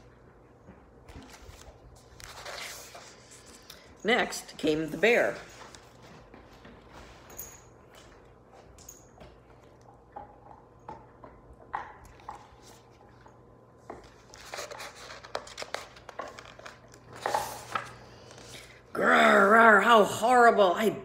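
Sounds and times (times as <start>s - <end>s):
paper rustling and page turning: 1.1s - 3.9s, 14.0s - 18.8s.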